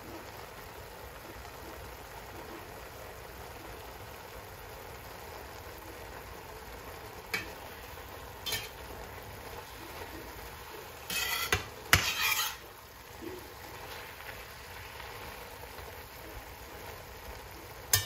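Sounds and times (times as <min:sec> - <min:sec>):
spinach sizzling in a frying pan: 0:00.0 - 0:18.0
turner scraping and clinking on pan: 0:07.3 - 0:07.6, 0:08.4 - 0:08.9, 0:11.0 - 0:12.8.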